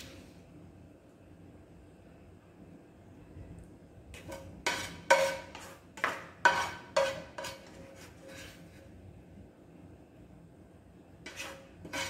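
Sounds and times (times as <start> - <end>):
utensil scraping frying pan: 4.2 - 8.9, 11.2 - 12.0.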